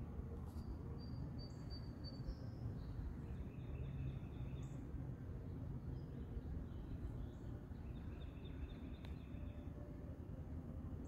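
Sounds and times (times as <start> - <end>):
birdsong: 5.5 - 9.7.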